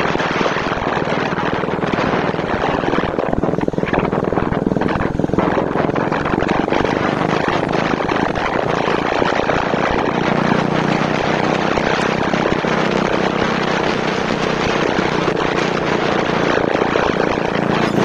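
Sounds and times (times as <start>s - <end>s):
motorcycle engine droning: 0.0s - 18.0s
wind rush on microphone: 0.0s - 18.0s.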